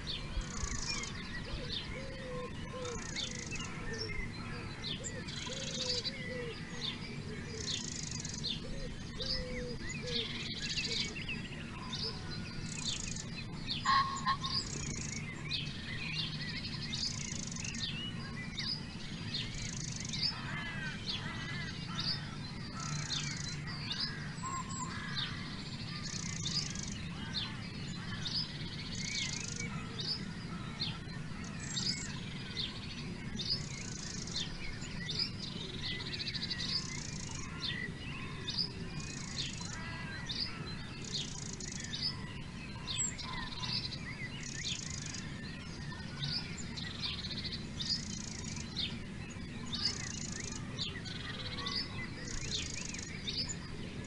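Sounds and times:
low steady hum: 0.0s - 54.0s
songbirds chirping: 0.0s - 54.0s
short buzzy bird call: 13.9s - 14.8s.

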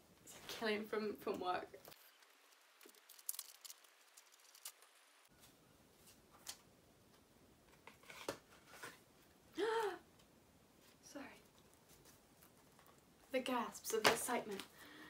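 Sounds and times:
paper rustling: 1.9s - 6.6s.

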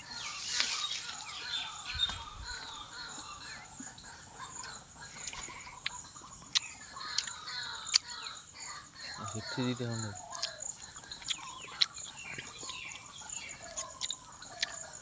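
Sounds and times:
birds chirping and calling: 0.0s - 15.0s
sharp clicks: 6.5s - 8.2s.

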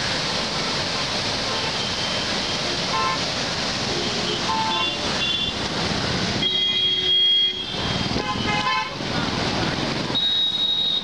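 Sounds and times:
road traffic: 0.0s - 11.0s
water rushing through stone channel: 0.0s - 11.0s
vehicle horn: 6.4s - 9.0s.

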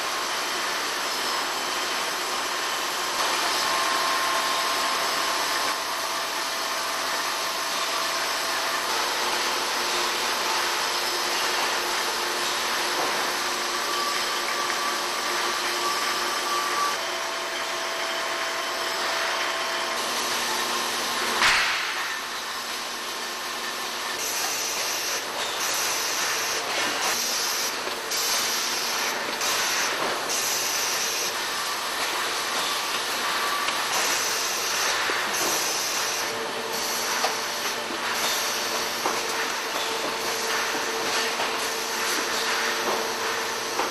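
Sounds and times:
bottling machine hissing and whirring: 0.0s - 43.9s.

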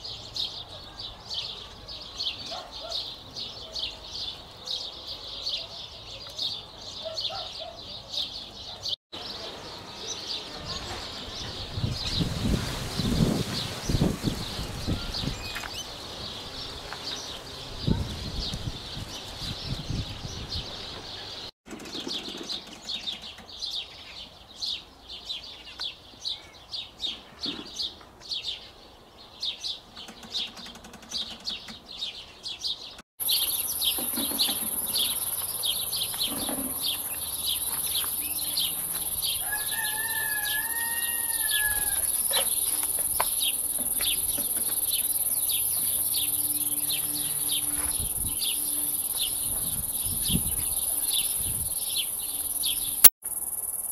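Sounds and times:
high-pitched insect buzz: 33.2s - 36.2s, 41.3s - 53.9s
insects chirping: 33.2s - 40.7s, 41.4s - 53.9s.

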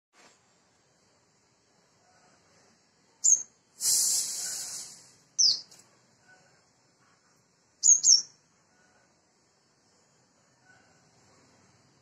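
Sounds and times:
bird giving high chirps: 3.2s - 5.7s, 7.8s - 8.4s
hissing rush of noise: 3.7s - 5.4s.

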